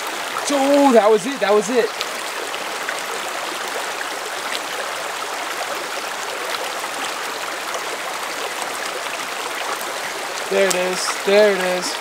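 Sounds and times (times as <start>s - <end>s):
stream flowing over rocks: 0.0s - 12.0s.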